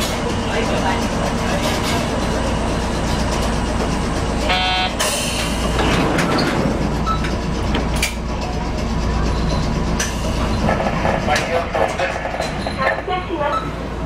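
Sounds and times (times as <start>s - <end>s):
tram equipment humming: 0.0s - 14.0s
short beep: 4.5s - 5.0s.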